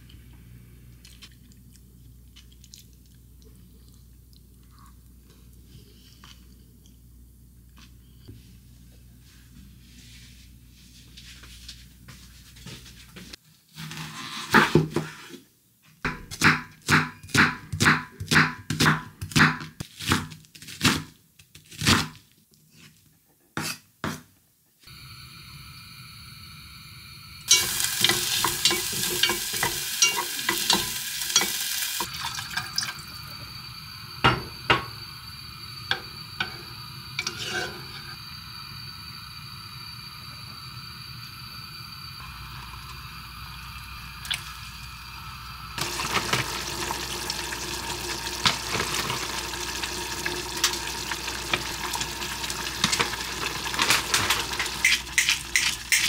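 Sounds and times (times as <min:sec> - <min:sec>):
onion sizzling in a saucepan: 0:24.9 - 0:56.0.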